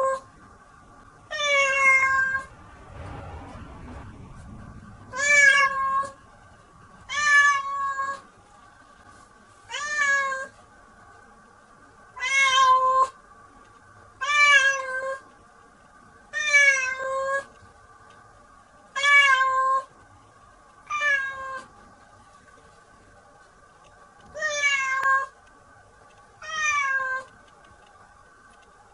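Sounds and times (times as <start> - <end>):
cat meowing: 1.3 - 2.5, 5.1 - 6.2, 7.1 - 8.2, 9.7 - 10.5, 12.2 - 13.2, 14.2 - 15.2, 16.4 - 17.5, 19.0 - 19.9, 20.9 - 21.7, 24.4 - 25.4, 26.4 - 27.3.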